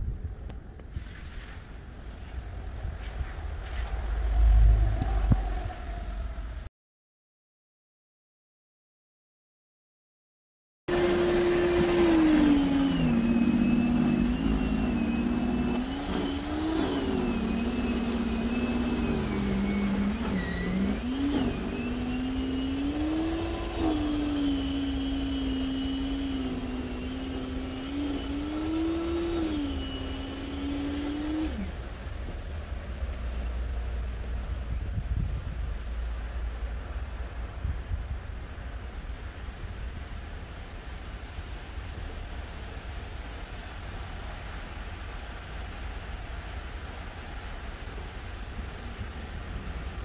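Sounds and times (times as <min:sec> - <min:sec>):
wind noise on microphone: 0:00.0 - 0:06.7, 0:11.9 - 0:50.0
engine revving: 0:03.7 - 0:06.4, 0:10.9 - 0:32.2.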